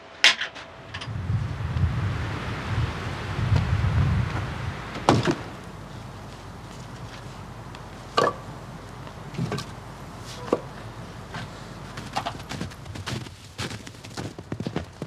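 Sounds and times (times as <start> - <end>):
steady low hiss: 0.0 - 15.0
sharp knocks: 4.9 - 5.6.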